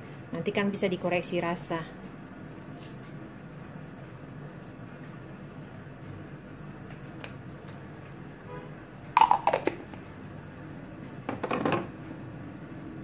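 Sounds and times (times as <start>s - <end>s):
spoon and jar clattering: 9.2s - 9.8s.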